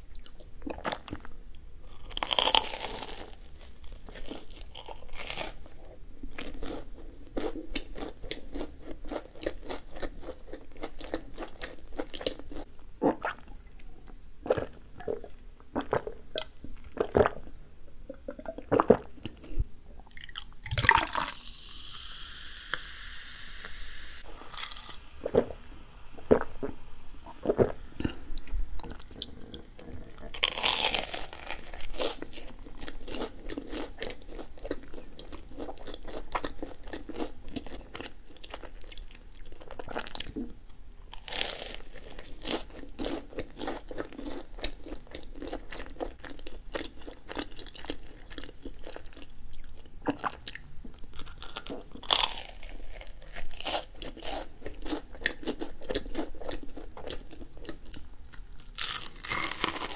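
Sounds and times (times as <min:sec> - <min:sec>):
crunchy chewing: 0:01.9 - 0:05.8, 0:24.4 - 0:25.5, 0:27.4 - 0:40.4, 0:41.1 - 0:59.9
sip from a glass: 0:21.1 - 0:25.6.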